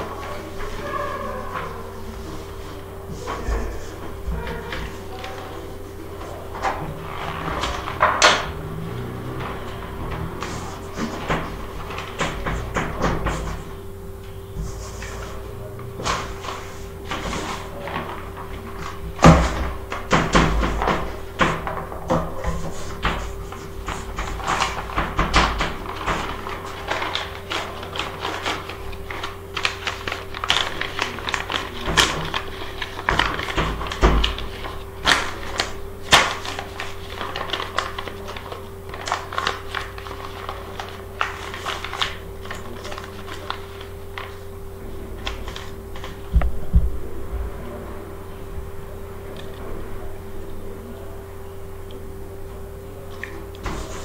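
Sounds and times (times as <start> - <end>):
steady hum: 0.0 - 54.0
chalk tapping and scratching: 53.6 - 54.0.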